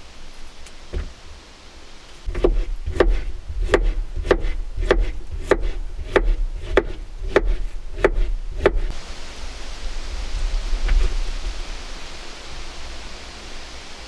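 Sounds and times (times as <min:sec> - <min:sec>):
knife chopping on cutting board: 0:02.3 - 0:08.9.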